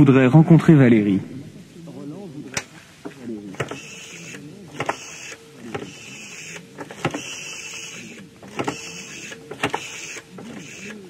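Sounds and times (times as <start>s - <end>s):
rotary phone dial whirring and clicking: 2.5s - 11.0s.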